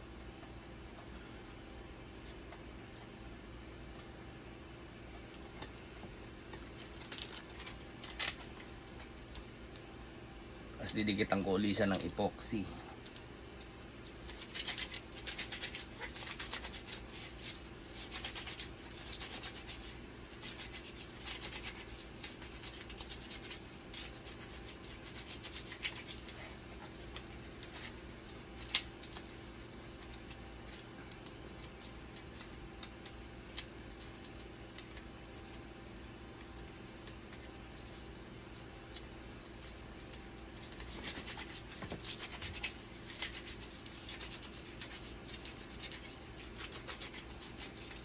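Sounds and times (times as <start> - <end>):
steady low hum: 0.0 - 48.0
gloved hands rubbing and scraping: 13.6 - 48.0.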